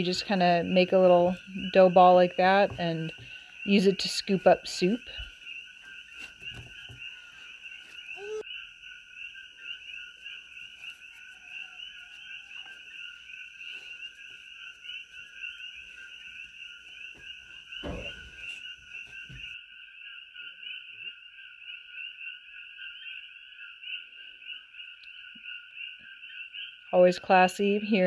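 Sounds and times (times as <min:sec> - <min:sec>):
frogs chirping: 0:00.0 - 0:27.0
soft low thump: 0:17.8 - 0:18.6.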